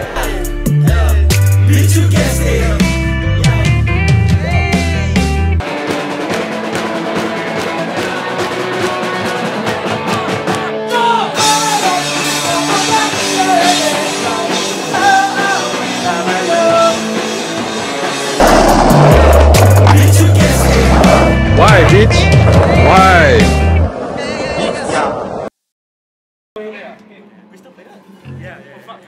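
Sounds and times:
rock band music: 0.1 - 23.9
heavy low bass: 18.4 - 23.8.

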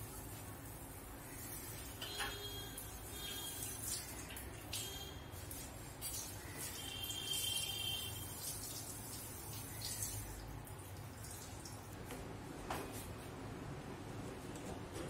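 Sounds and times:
sugar trickling into liquid: 0.0 - 12.0.

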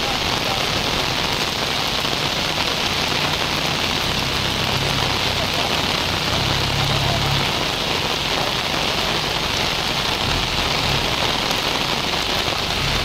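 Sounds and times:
heavy rain falling: 0.0 - 13.0.

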